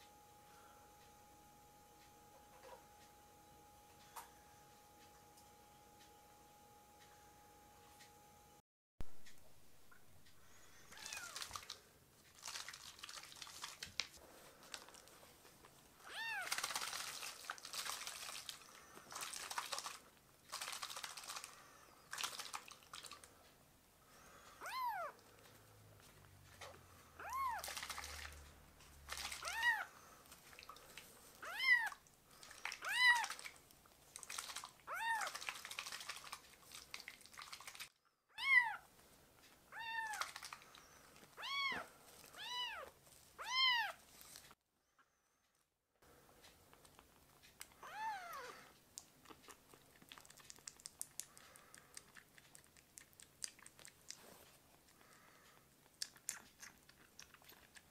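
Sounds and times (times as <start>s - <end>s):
kitten meowing: 10.9s - 11.4s, 16.0s - 16.5s, 24.6s - 25.2s, 27.2s - 27.6s, 29.4s - 29.9s, 31.4s - 32.0s, 32.8s - 33.4s, 34.9s - 35.3s, 38.3s - 38.8s, 39.7s - 40.3s, 41.4s - 44.0s, 47.8s - 48.6s.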